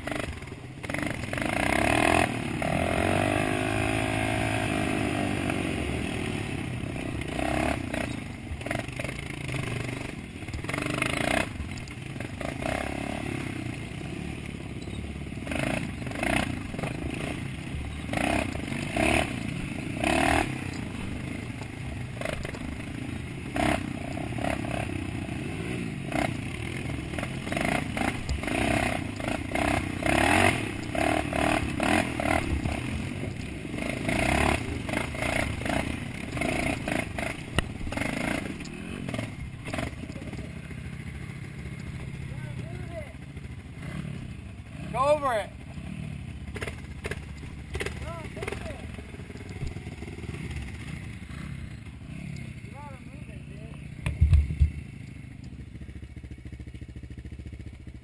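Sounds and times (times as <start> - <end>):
dirt bike engine revving: 0.0 - 58.0
bike clattering over bumps: 46.5 - 48.6, 54.0 - 54.9.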